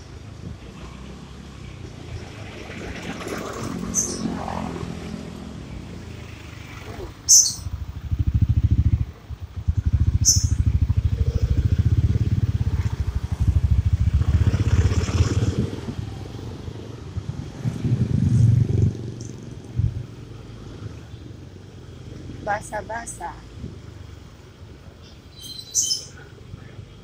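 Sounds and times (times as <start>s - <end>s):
motorcycle engine running: 2.5s - 20.9s.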